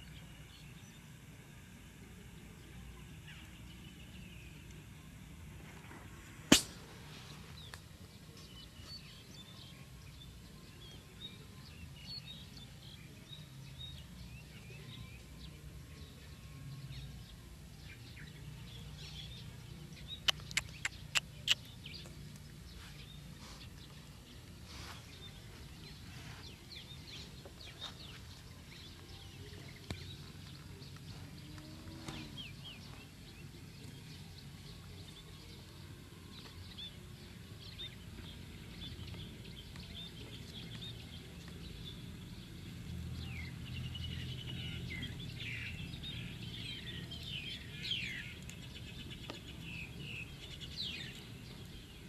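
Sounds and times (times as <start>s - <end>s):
faint bird chirps: 17.9s - 37.0s.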